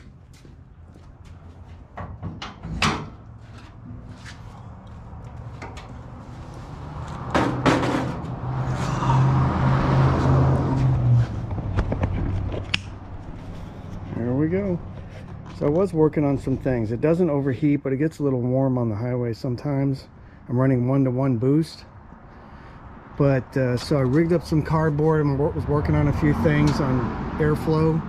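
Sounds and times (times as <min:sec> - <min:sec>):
metal clicks and clunks: 0:02.0 - 0:03.2
loud knock: 0:07.3 - 0:08.2.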